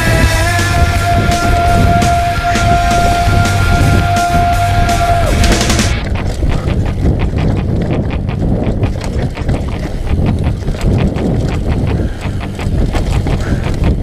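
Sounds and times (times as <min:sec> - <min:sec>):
wind rumble on microphone: 0:00.0 - 0:14.0
bike chain and frame rattling: 0:05.5 - 0:14.0.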